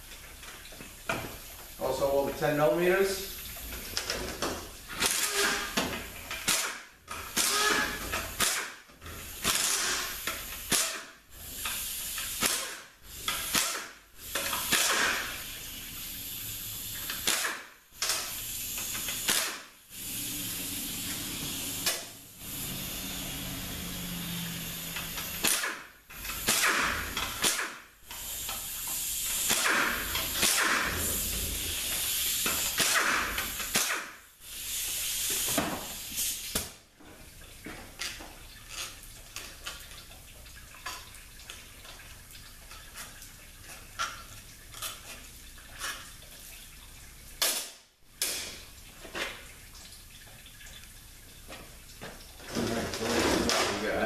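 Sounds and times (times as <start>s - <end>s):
power ratchet bursts: 5.0s - 5.8s, 7.3s - 8.7s, 9.3s - 11.0s, 14.4s - 27.7s, 29.2s - 34.7s
air hiss: 13.2s - 25.7s, 26.4s - 36.6s.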